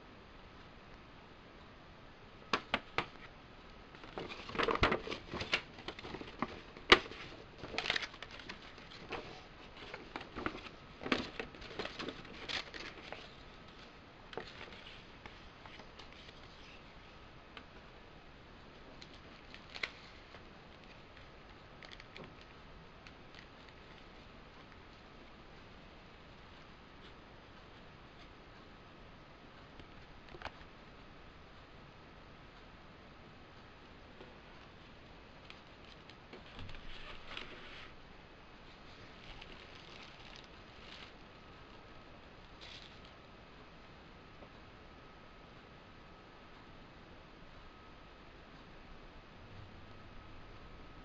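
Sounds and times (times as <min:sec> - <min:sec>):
paper inserts and sleeves rustling: 0:04.0 - 0:16.9, 0:35.4 - 0:37.9, 0:38.8 - 0:41.3.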